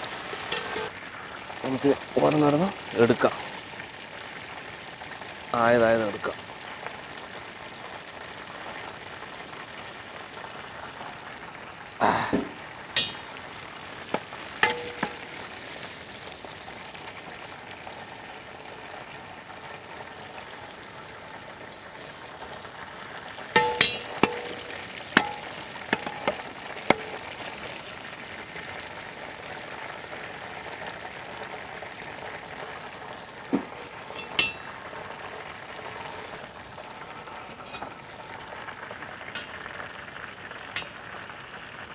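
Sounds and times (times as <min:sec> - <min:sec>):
hot oil sizzling: 0:00.0 - 0:41.9
metal ladles clinking: 0:00.4 - 0:00.9, 0:12.9 - 0:13.3, 0:14.6 - 0:15.3, 0:23.6 - 0:27.8, 0:33.6 - 0:34.8.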